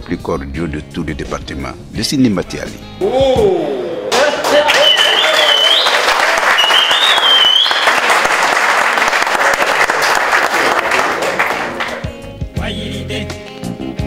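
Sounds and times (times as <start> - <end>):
audience clapping: 4.1 - 12.3.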